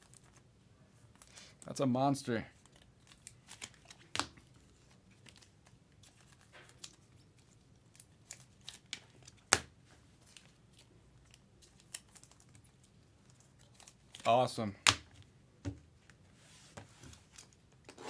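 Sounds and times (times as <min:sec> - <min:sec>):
cards and plastic sleeve rustling: 0:02.5 - 0:15.3.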